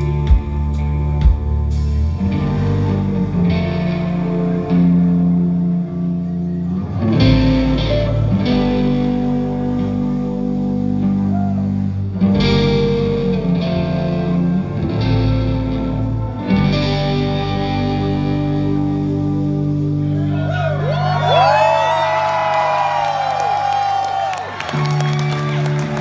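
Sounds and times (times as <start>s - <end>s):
electric guitar chords with effects: 0.0s - 26.0s.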